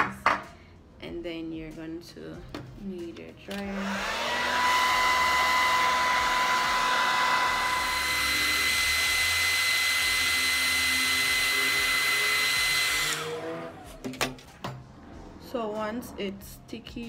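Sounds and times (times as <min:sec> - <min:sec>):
hair dryer blowing: 0:03.6 - 0:14.0.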